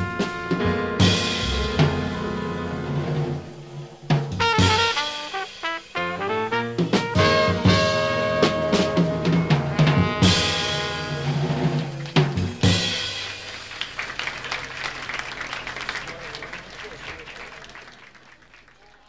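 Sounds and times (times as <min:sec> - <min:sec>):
jazz band playing: 0:00.0 - 0:15.2
drum and cymbal crashes: 0:01.0 - 0:06.2
audience applause: 0:11.8 - 0:19.0.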